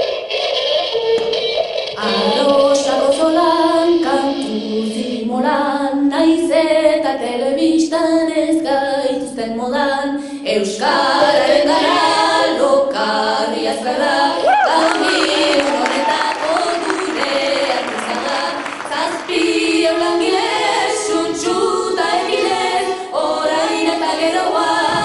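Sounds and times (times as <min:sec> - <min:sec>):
woman singing slow melody: 0:02.0 - 0:11.3.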